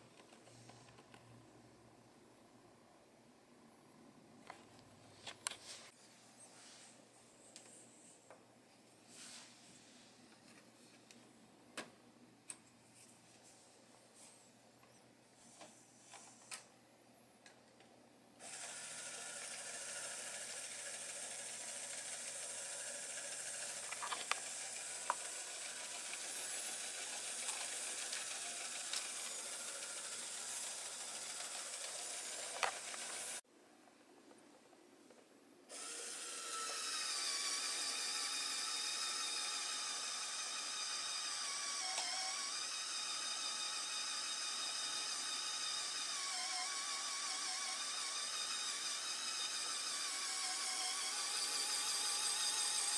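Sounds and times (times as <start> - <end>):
small electric motor whining: 18.4 - 33.4, 35.7 - 52.9.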